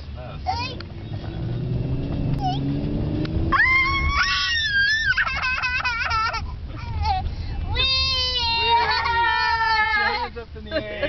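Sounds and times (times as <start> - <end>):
car road rumble: 0.0 - 11.0
child shrieking with delight: 3.5 - 5.4
child squealing laughter: 3.6 - 7.2, 8.4 - 10.3.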